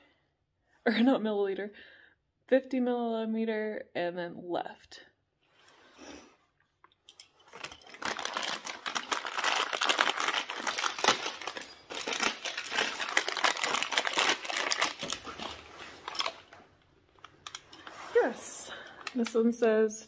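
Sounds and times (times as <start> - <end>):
plastic bag crinkling: 7.3 - 16.6.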